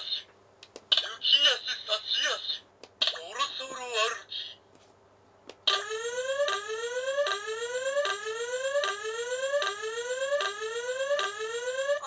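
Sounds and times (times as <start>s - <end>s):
buzzy rising electronic tone: 5.9s - 12.0s.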